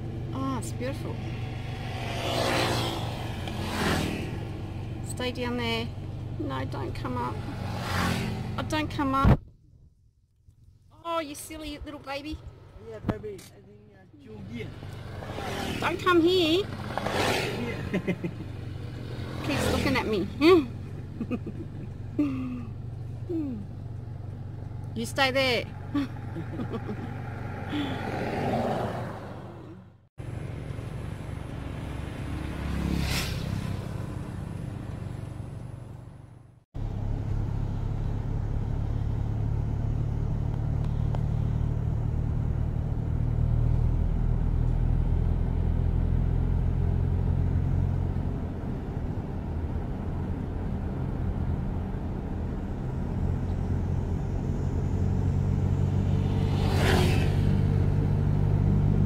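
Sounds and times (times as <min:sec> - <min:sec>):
vehicle engine and road rumble: 0:00.0 - 0:59.0
brief whoosh: 0:32.6 - 0:34.2, 0:56.0 - 0:57.8.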